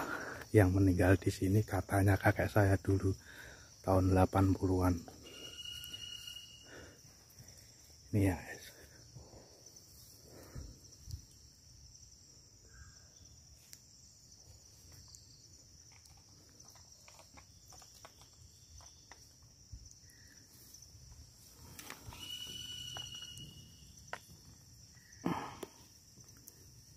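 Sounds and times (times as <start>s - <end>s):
insects droning: 0.0s - 26.9s
faint ticks and rustles: 7.2s - 11.6s, 13.5s - 26.9s.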